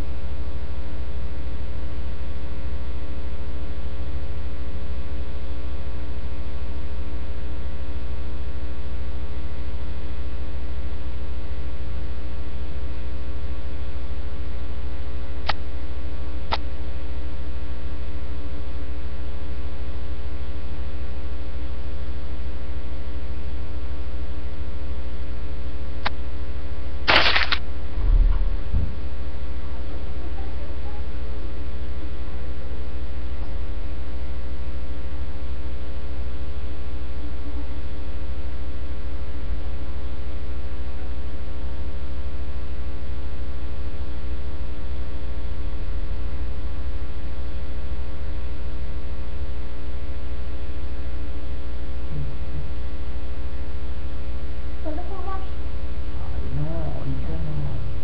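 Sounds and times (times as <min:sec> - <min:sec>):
electrical mains hum: 0:00.0 - 0:58.0
sharp clicks: 0:27.1 - 0:27.6
crackle burst: 0:27.1 - 0:29.0
low thumps: 0:27.1 - 0:29.3.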